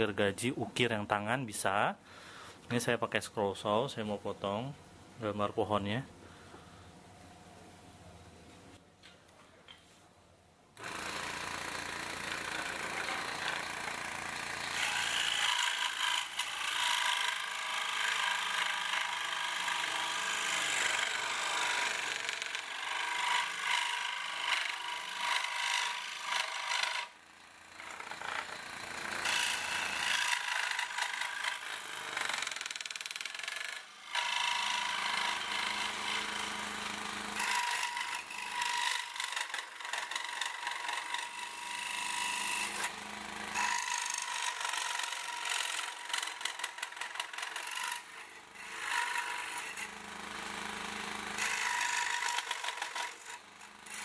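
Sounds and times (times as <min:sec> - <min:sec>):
saw motor hum: 0:10.8 - 0:54.0
scroll saw blade rasping wood: 0:11.1 - 0:27.1, 0:27.8 - 0:54.0.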